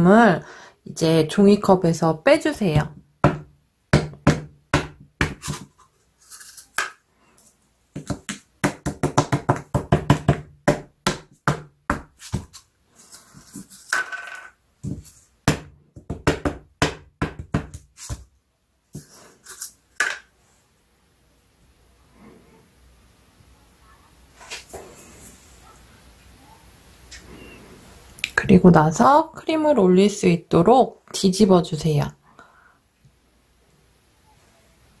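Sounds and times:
paper cups knocking on wood: 0:08.0 - 0:12.6, 0:13.4 - 0:18.3.

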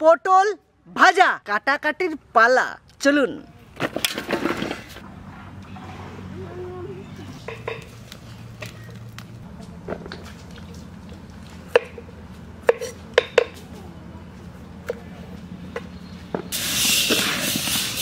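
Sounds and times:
loud rushing hiss: 0:16.5 - 0:18.0.

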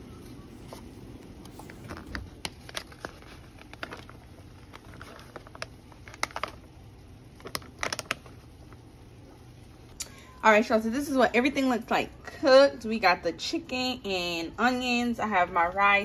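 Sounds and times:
pouch crinkling: 0:01.5 - 0:06.7, 0:07.4 - 0:08.6.

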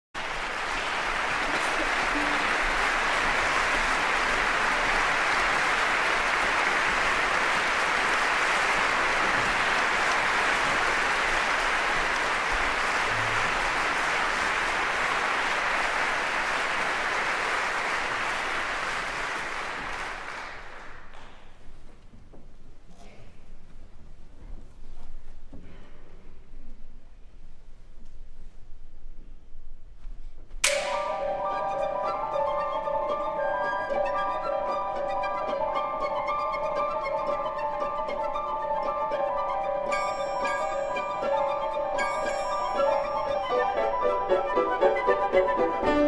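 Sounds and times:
audience applauding: 0:00.2 - 0:21.6.

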